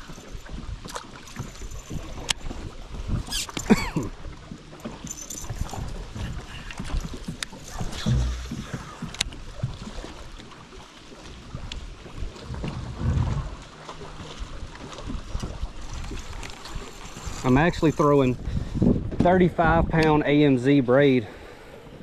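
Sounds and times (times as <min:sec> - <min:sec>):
water slapping boat hull: 0:00.0 - 0:20.3
wind buffeting microphone: 0:11.4 - 0:13.8, 0:14.4 - 0:20.3.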